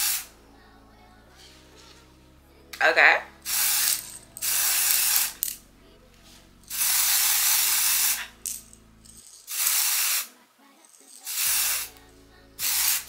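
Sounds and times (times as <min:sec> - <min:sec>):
aerosol spray can hissing: 0:00.0 - 0:00.3, 0:03.5 - 0:05.6, 0:06.7 - 0:08.6, 0:09.4 - 0:10.3, 0:11.1 - 0:12.0, 0:12.6 - 0:13.0.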